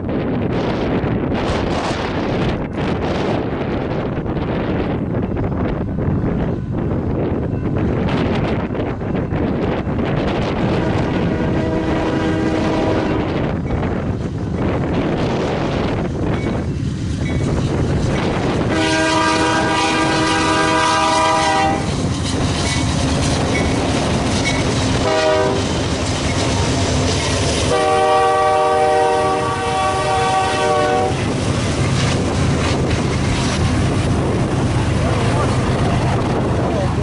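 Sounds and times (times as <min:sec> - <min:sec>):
freight train rumble and wheel clatter: 0:00.0 - 0:37.0
heavy wind on microphone: 0:00.0 - 0:37.0
locomotive air horn blasts: 0:10.7 - 0:13.4, 0:18.6 - 0:21.9, 0:25.0 - 0:25.8, 0:27.7 - 0:31.3.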